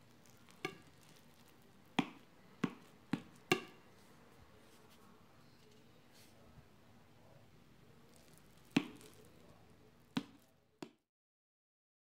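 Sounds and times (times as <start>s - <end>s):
knife knocking on ceramic plate: 2.0s - 3.8s.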